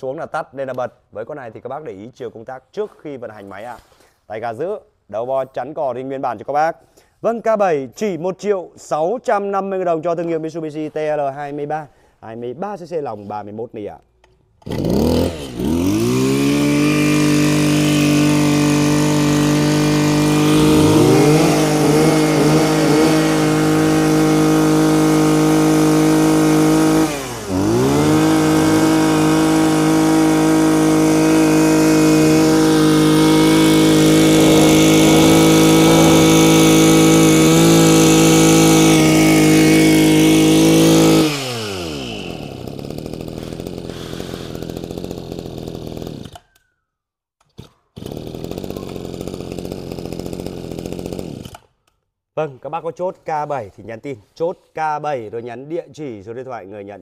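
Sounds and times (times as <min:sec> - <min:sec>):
brush cutter engine revving: 0:14.6 - 0:46.6, 0:47.5 - 0:51.7.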